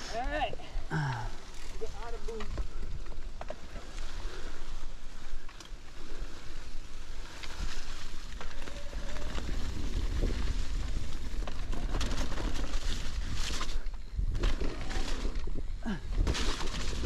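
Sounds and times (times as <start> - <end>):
bike tyres rolling over dirt: 0.0 - 17.0
bike clicks and rattles: 1.1 - 17.0
wind buffeting microphone: 7.6 - 17.0.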